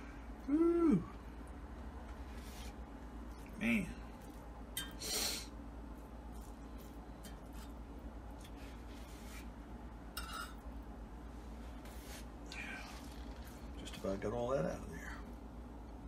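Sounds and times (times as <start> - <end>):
rustling scrape: 2.2 - 2.8, 8.5 - 9.6, 11.5 - 13.7
utensils scraping in a pot: 10.2 - 10.6.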